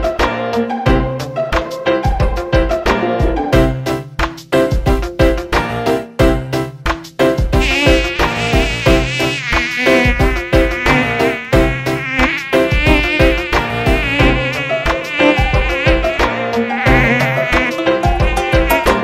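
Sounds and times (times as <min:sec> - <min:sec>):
backing track with steady beat: 0:07.0 - 0:19.0
cartoon bee buzzing: 0:07.6 - 0:19.0.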